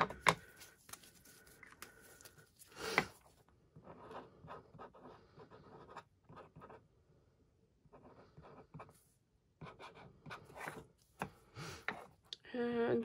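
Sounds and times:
marker scratching on plastic: 0:03.7 - 0:06.8, 0:07.8 - 0:09.0, 0:09.6 - 0:11.0.

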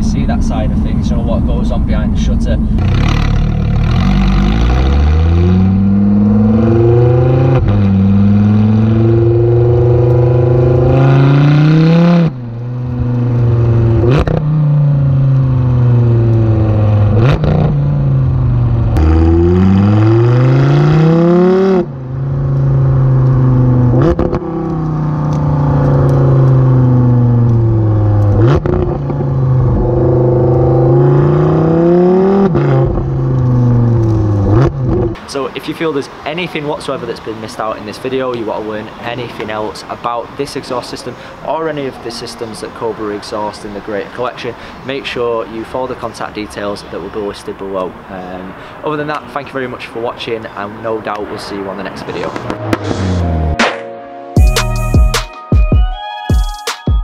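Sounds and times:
car engine revving: 0:00.0 - 0:35.2, 0:51.2 - 0:53.7
exhaust cracks: 0:00.0 - 0:53.7.

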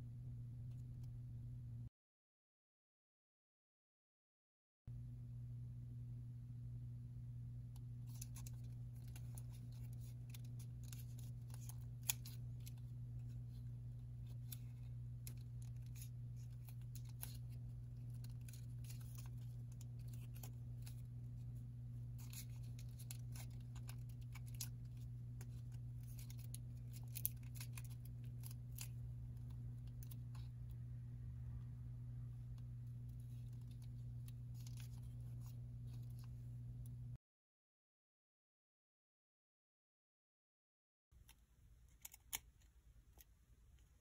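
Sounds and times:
steady low hum: 0:00.0 - 0:01.9, 0:04.9 - 0:37.2
paper crackling as folded: 0:08.0 - 0:30.7, 0:32.5 - 0:36.5.

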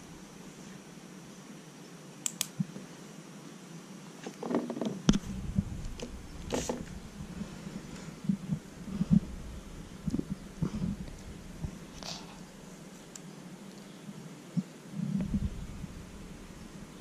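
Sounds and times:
rustling: 0:04.2 - 0:13.9.

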